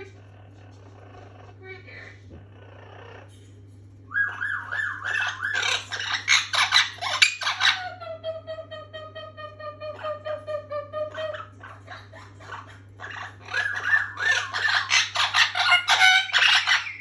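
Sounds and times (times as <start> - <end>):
parrot whistling and calling: 4.1 - 8.2, 10.0 - 17.0.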